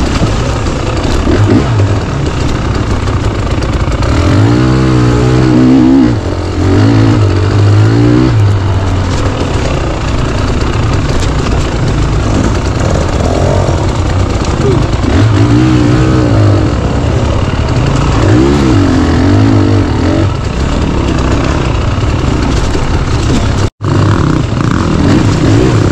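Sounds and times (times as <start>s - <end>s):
dirt bike engine revving: 0.0s - 25.9s.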